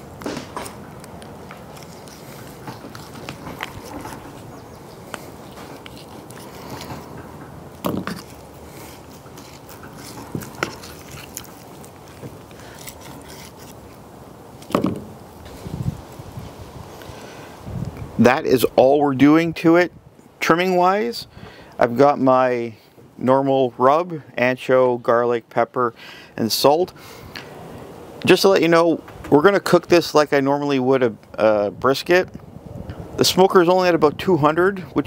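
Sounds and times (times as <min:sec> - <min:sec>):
knife slicing and scraping meat: 0:07.9 - 0:14.0.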